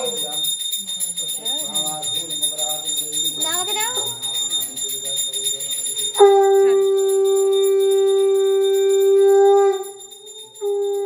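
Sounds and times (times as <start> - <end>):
hand bell ringing: 0.0 - 11.0
conch shell blown: 6.2 - 11.0.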